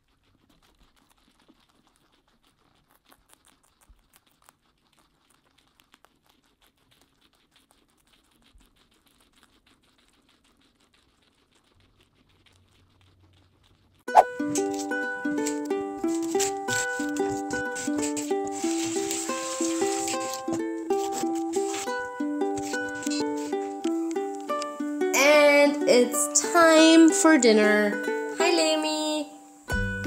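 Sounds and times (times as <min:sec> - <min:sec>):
guinea pigs chewing leaves: 0:00.0 - 0:29.2
ukulele music: 0:14.1 - 0:30.0.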